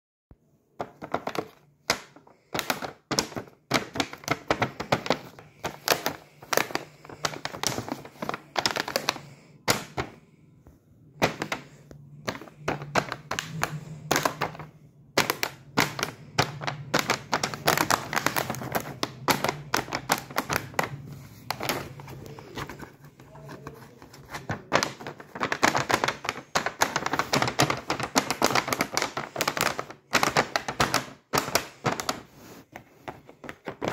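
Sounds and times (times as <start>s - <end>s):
plastic clicking and crackling: 0.8s - 10.2s, 11.2s - 33.9s.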